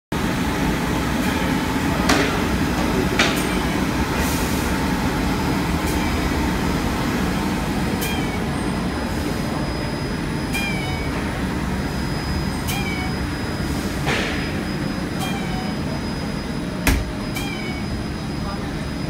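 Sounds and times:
machine and conveyor running: 0.2s - 19.0s.

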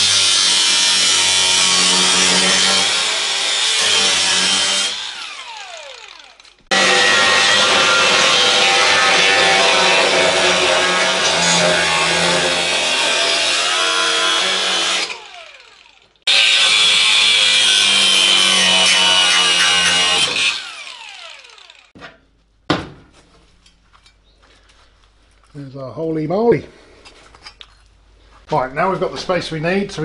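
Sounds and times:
angle grinder cutting sheet steel: 0.0s - 22.0s.

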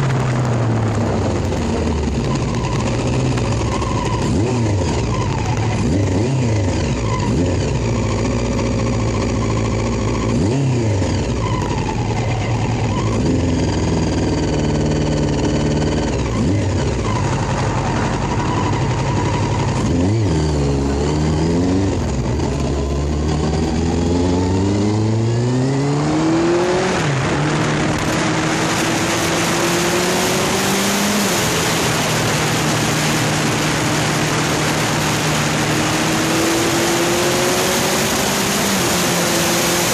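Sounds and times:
wind noise on microphone: 0.0s - 5.7s, 21.9s - 39.8s
motorcycle engine revving: 0.0s - 39.9s.

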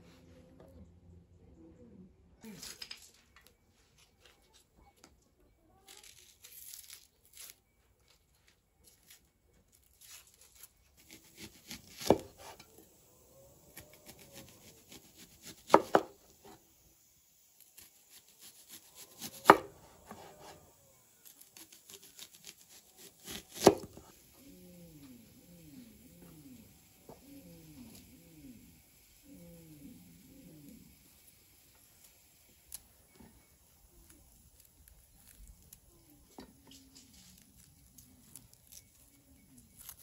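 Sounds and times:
onion skin rustling: 5.8s - 16.7s, 17.5s - 29.2s, 30.2s - 40.0s
knife cutting onion: 8.9s - 24.3s.

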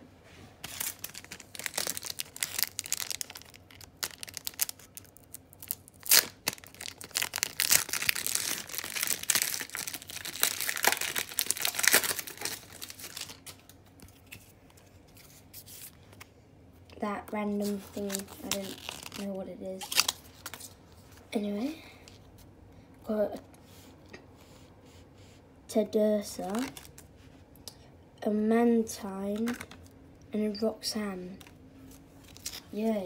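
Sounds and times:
wrapper crinkling and tearing: 0.6s - 14.5s, 17.7s - 20.8s, 26.5s - 27.1s, 29.4s - 29.9s, 32.2s - 32.7s.

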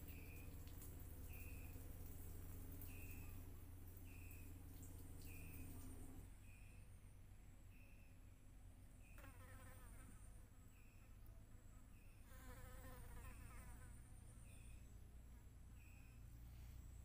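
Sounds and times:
flying insect buzzing: 9.2s - 10.2s, 12.3s - 14.0s.

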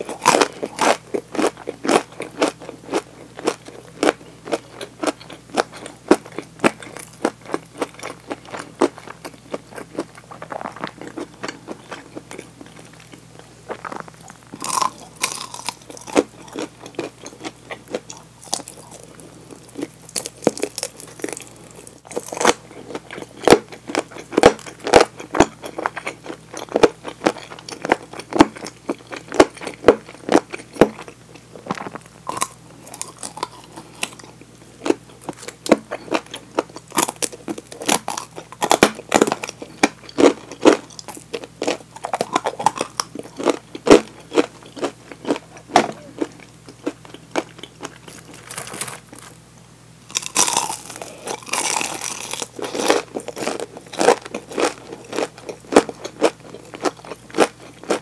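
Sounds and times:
wet chewing: 0.0s - 49.3s, 50.1s - 58.0s
crunching of fried chicken: 0.0s - 49.5s, 50.1s - 58.0s.

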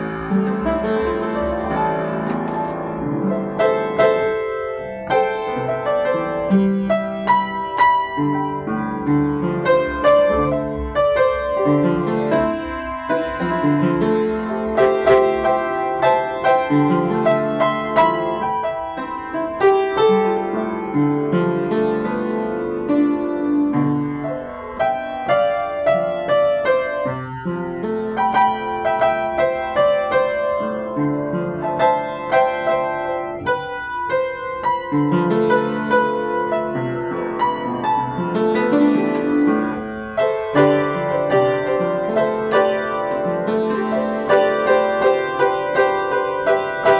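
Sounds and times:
upright piano playing: 0.0s - 46.9s.

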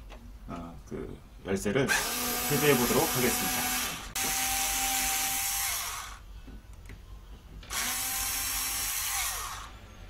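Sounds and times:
small electric screwdriver running: 1.9s - 6.2s, 7.7s - 9.7s.

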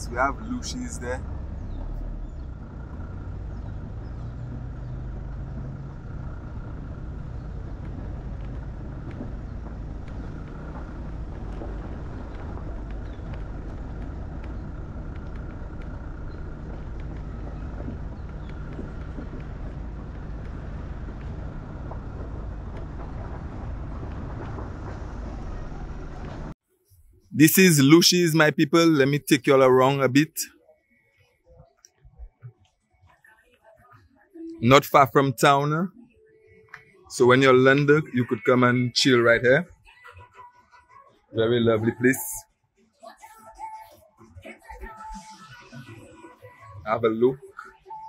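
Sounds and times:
vehicle engine and tyre rumble: 0.0s - 26.6s.

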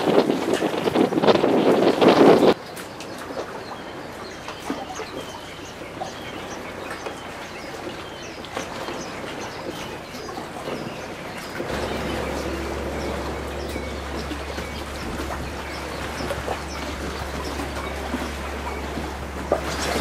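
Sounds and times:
wind buffeting microphone: 0.0s - 2.6s, 8.9s - 20.0s.

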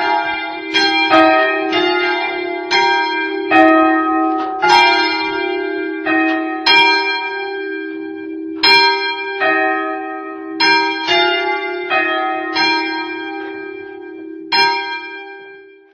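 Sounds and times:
church bells ringing: 0.0s - 15.9s
deep hum of large bell: 0.0s - 15.9s.

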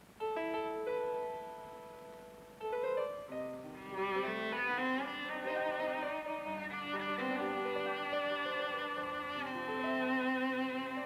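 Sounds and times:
held keyboard chord: 0.2s - 11.0s
bowed strings melody: 0.4s - 11.0s.

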